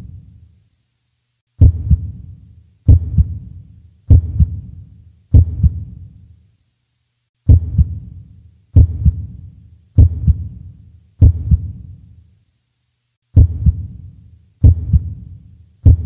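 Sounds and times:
heartbeat thumps: 1.6 - 2.3, 2.9 - 3.5, 4.1 - 4.7, 5.3 - 6.0, 7.5 - 8.1, 8.8 - 9.4, 10.0 - 10.6, 11.2 - 11.8, 13.4 - 14.0, 14.6 - 16.0.

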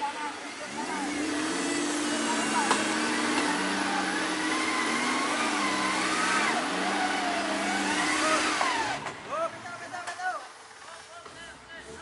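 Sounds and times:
vehicle engine running: 0.0 - 12.0
motor whine rising and falling: 0.7 - 9.1.

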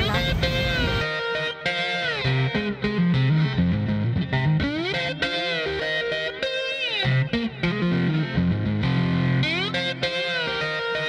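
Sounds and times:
low bass notes: 0.0 - 1.0
distorted electric guitar sliding: 0.0 - 11.0.

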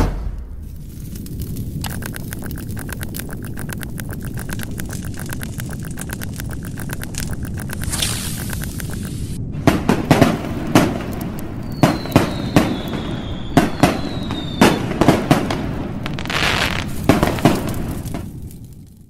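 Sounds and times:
fireworks bangs and crackles: 1.6 - 19.0
falling firework whistle: 11.6 - 15.3.

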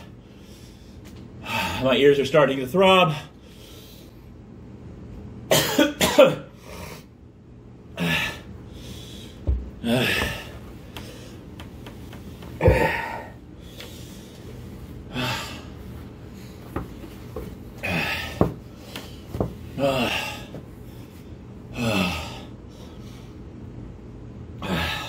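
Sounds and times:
man breathing hard: 0.0 - 1.9, 8.0 - 11.5, 12.6 - 16.8, 17.8 - 23.5
man coughing: 5.5 - 6.6, 12.6 - 13.3.

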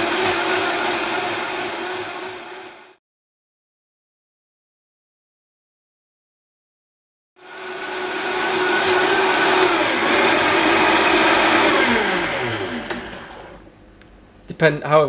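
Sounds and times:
blender motor whining: 0.0 - 3.0, 7.4 - 13.7
blender switch click: 12.8 - 13.2.

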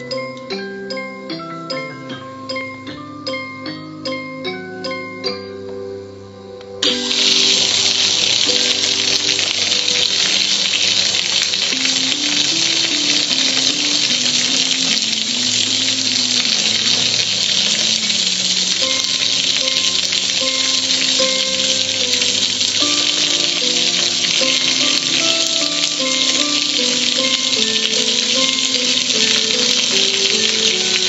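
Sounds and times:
soft tune: 0.0 - 31.0
water splashing on grill: 6.8 - 31.0.

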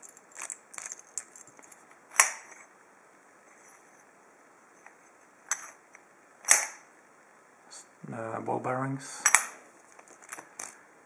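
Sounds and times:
padlock metal clicks and rattling: 0.0 - 2.5.

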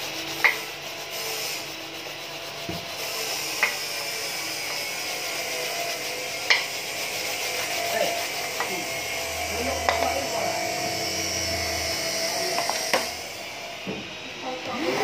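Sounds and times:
brush scrubbing wooden board: 0.0 - 4.1, 4.9 - 11.0.

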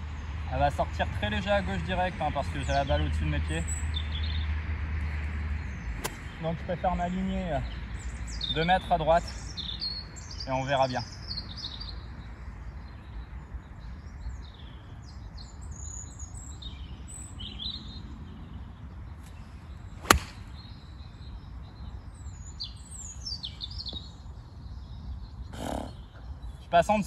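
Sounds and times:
birds chirping: 0.0 - 27.0
golf club striking ball: 6.0 - 6.4, 20.0 - 20.7.

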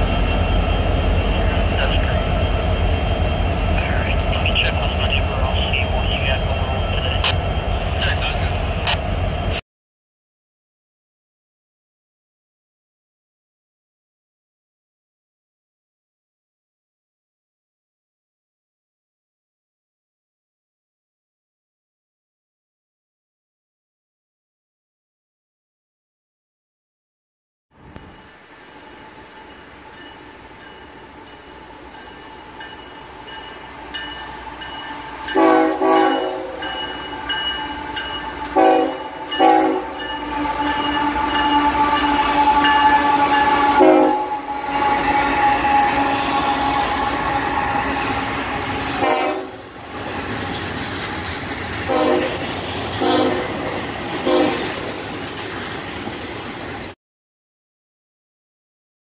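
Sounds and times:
train rumbling and rattling: 0.0 - 9.6, 27.8 - 57.0
train horn blasts: 34.8 - 49.8, 51.9 - 52.4, 53.0 - 53.6, 54.2 - 54.7.

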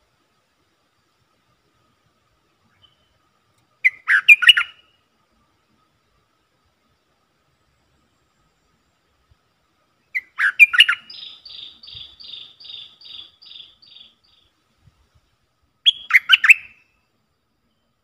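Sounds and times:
bird calling: 3.8 - 5.0, 10.1 - 14.5, 15.8 - 17.0.

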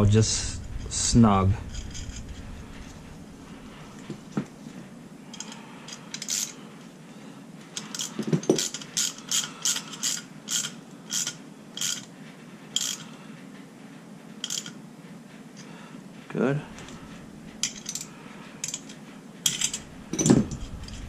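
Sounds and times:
ratchet wrench clicking: 7.8 - 12.1, 12.8 - 13.1, 14.4 - 14.7.

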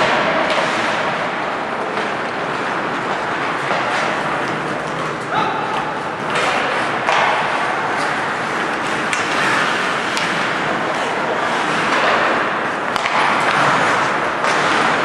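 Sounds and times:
hockey sticks and puck clacking: 0.0 - 15.0
skate blades scraping ice: 0.0 - 15.0.

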